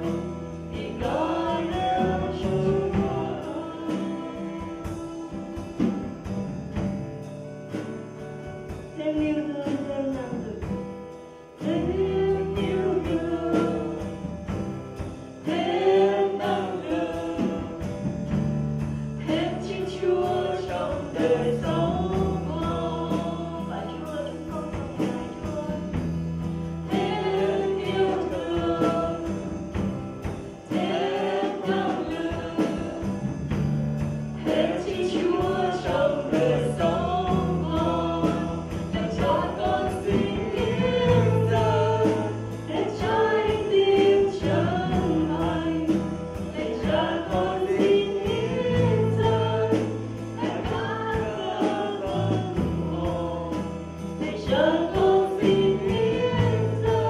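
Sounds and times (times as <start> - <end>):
woman singing: 0.0 - 6.1, 9.0 - 10.8, 11.6 - 14.3, 19.2 - 26.1, 26.9 - 29.9, 34.4 - 57.0
electric bass: 0.0 - 9.0, 11.6 - 57.0
acoustic guitar: 0.0 - 57.0
drums with steady beat: 0.0 - 57.0.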